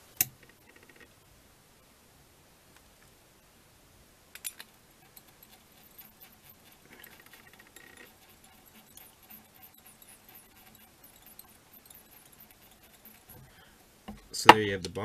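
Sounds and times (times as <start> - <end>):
thread rustling: 5.0 - 14.4.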